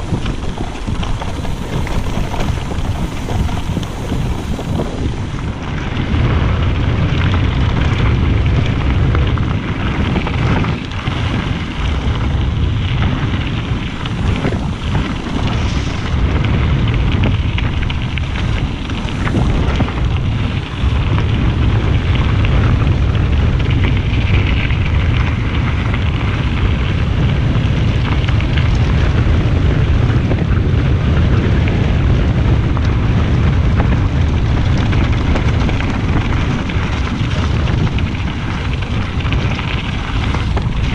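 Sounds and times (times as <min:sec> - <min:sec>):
tyres crunching on gravel: 0:00.0 - 0:08.2
bike rattling over stones: 0:00.0 - 0:40.9
wind buffeting microphone: 0:00.0 - 0:40.9.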